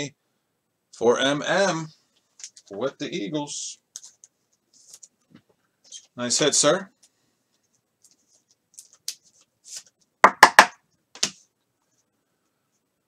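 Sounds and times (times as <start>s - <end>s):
cards rustling: 8.0s - 10.0s.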